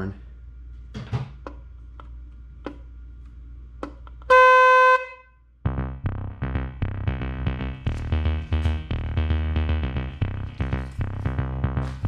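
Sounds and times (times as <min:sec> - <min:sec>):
electric horn blast: 0:04.3 - 0:09.3
upbeat electronic music: 0:05.6 - 0:12.0.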